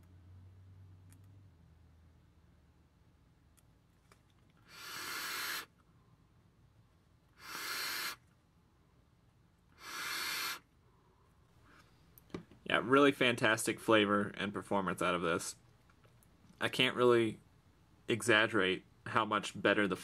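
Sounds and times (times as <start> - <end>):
person exhaling vapor: 4.6 - 5.7, 7.4 - 8.2, 9.8 - 10.7.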